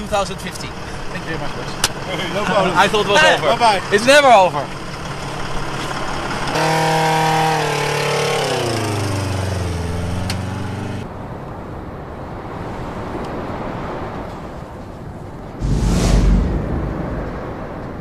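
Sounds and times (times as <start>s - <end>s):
vehicle engine running: 0.0s - 11.0s
dull vehicle noise: 0.0s - 18.0s.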